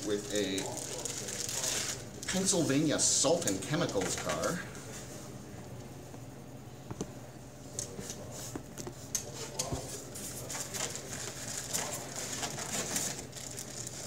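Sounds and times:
plastic packaging rustling: 0.0s - 2.8s, 10.2s - 14.0s.

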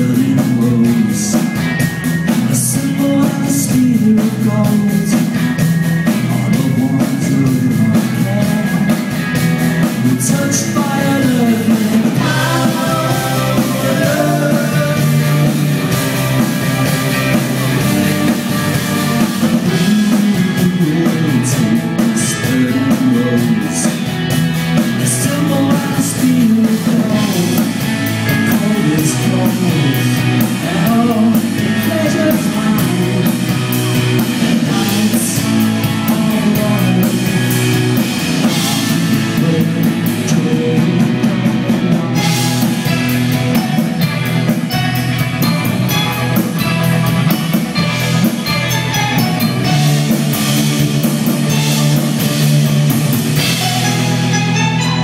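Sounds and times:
lead vocals singing: 0.0s - 5.3s, 9.8s - 45.1s
rock band playing: 0.0s - 55.0s.

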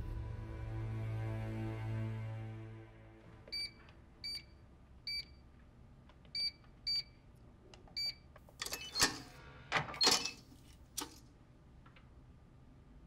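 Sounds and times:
keypad beeps: 3.5s - 4.5s, 5.1s - 5.3s, 6.3s - 7.1s, 7.9s - 9.1s.

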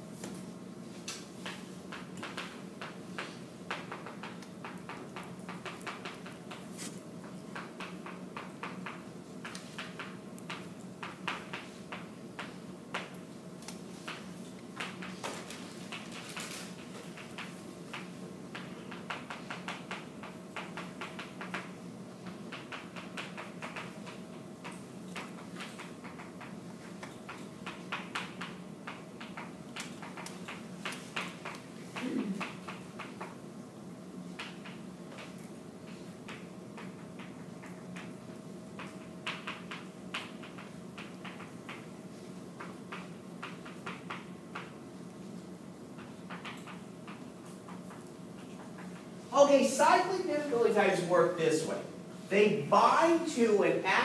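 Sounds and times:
electrical hum: 0.0s - 54.0s
chalk tapping and scratching: 1.4s - 7.0s.

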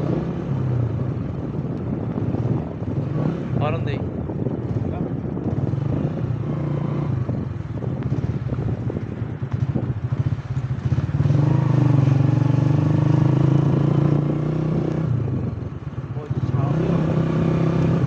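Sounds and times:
vehicle engine running: 3.7s - 14.4s.

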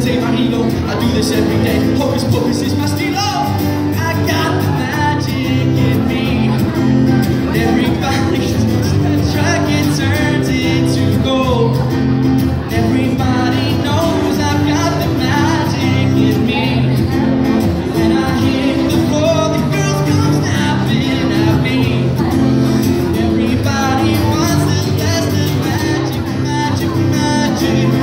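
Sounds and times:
acoustic guitar strumming: 0.0s - 28.0s
man singing into a microphone: 0.0s - 28.0s.

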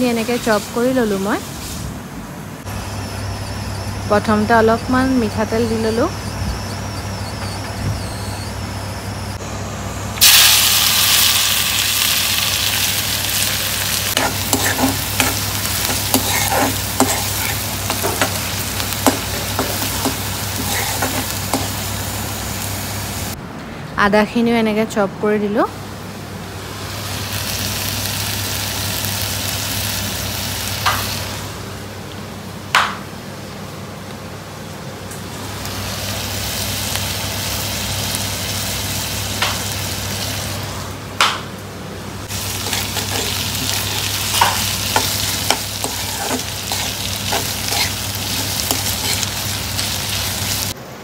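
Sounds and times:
food sizzling in oil: 10.2s - 23.4s, 26.7s - 31.5s, 35.3s - 40.7s, 42.3s - 50.8s.

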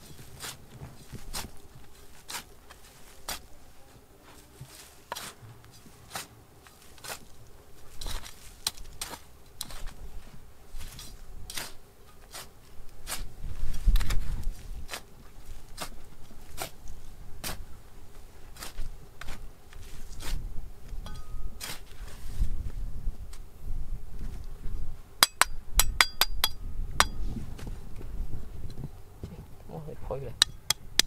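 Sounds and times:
trowel scraping gravelly soil: 0.0s - 3.7s, 4.3s - 20.5s, 21.1s - 22.7s.

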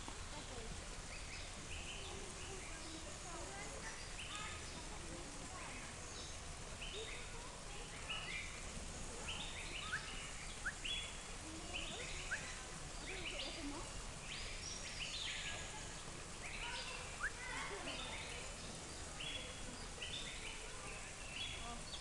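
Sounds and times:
low background noise: 0.0s - 22.0s
high chirping calls: 5.8s - 22.0s.

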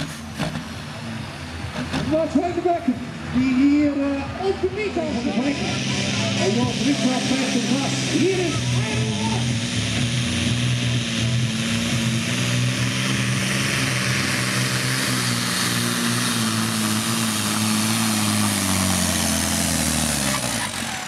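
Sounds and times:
truck diesel engine at full load: 0.0s - 21.0s.

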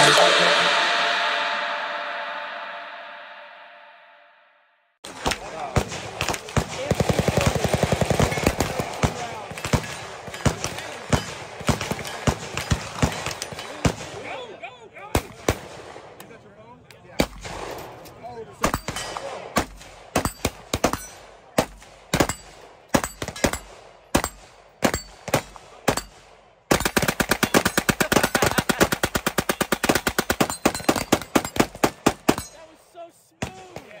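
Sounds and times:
machine gun full-auto burst: 6.6s - 10.0s, 26.7s - 32.0s.

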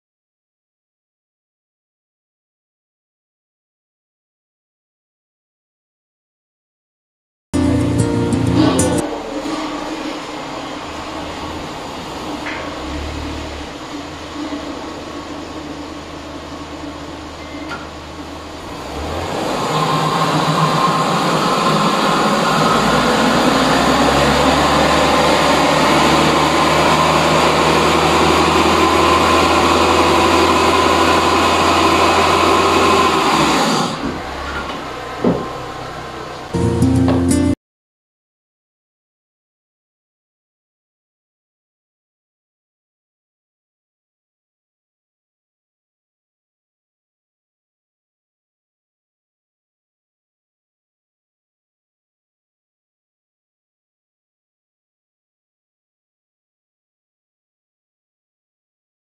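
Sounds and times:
car engine running: 7.6s - 37.2s
tyres whining on rollers: 8.4s - 36.6s.

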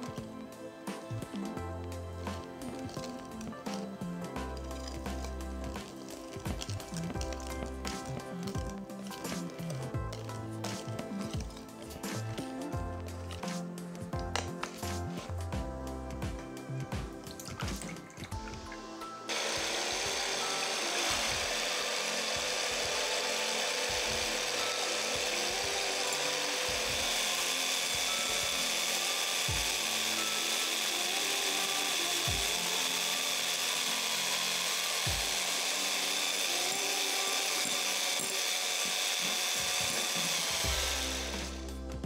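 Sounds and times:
electric hand mixer whipping: 0.0s - 15.3s, 16.8s - 42.0s.

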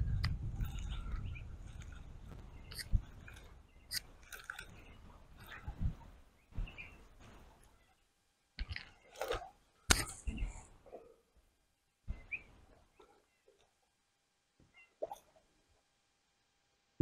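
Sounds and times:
wind buffeting the microphone: 0.0s - 4.0s, 4.7s - 7.4s.

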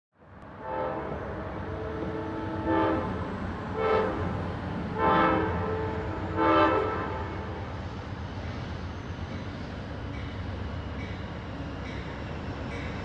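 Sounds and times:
low train rumble: 0.2s - 13.0s
train horn chord: 0.5s - 7.7s.

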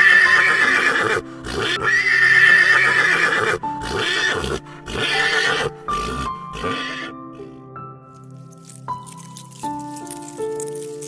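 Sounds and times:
horse whinnying: 0.0s - 7.2s
background music: 0.0s - 11.0s.

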